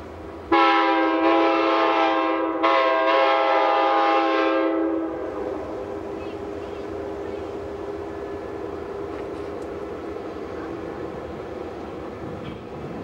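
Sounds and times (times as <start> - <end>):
locomotive horn blasts: 0.5 - 5.9.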